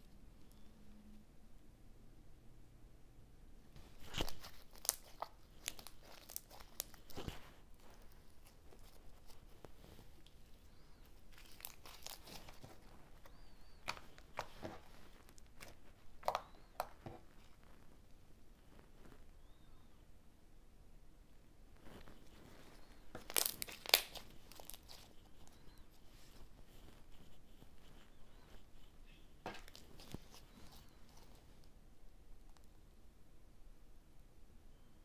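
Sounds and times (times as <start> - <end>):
slime crackling and squelching: 3.8 - 19.6, 21.8 - 31.8.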